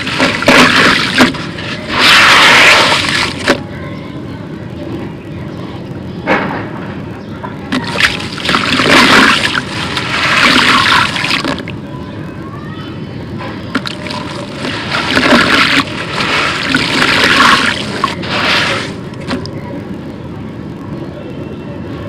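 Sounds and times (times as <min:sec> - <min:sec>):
grit splashing into water: 0:00.0 - 0:03.6, 0:07.7 - 0:11.7, 0:13.8 - 0:19.5.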